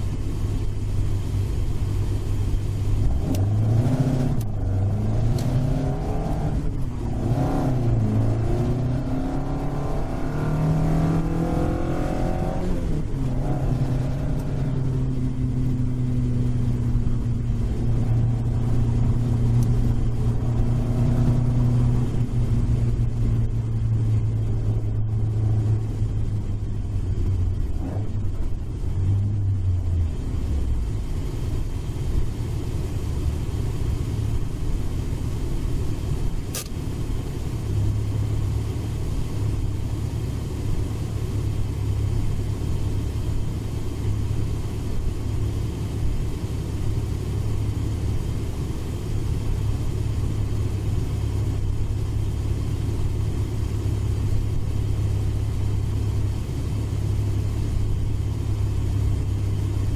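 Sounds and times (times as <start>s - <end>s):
car engine drone from cabin: 0.0s - 59.9s
short click: 36.5s - 36.8s.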